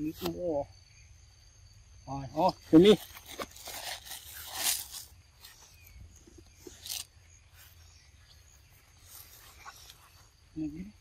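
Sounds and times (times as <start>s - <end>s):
faint insect chirring: 0.0s - 11.0s
rustling and scuffing: 2.8s - 10.6s.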